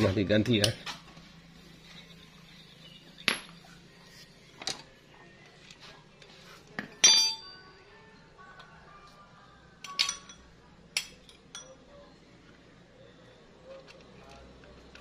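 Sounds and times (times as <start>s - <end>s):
metal tools clinking on engine: 7.0s - 7.5s, 9.8s - 10.4s.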